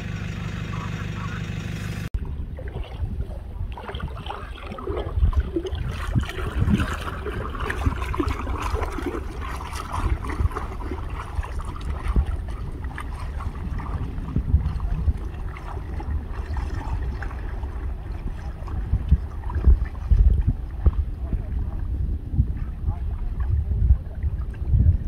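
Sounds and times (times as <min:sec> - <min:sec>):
steady low rumble: 0:00.0 - 0:25.0
water sloshing and splashing: 0:02.2 - 0:25.0.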